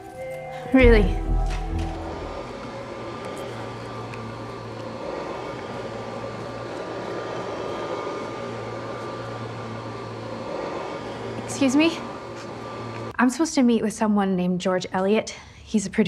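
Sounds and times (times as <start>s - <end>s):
faint high held tone: 0.0s - 2.9s.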